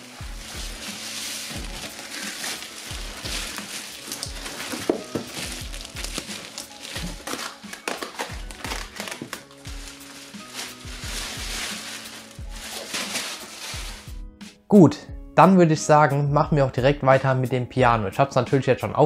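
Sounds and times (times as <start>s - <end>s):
plastic film crinkling: 0.0s - 14.2s
background music with steady beat: 0.0s - 19.0s.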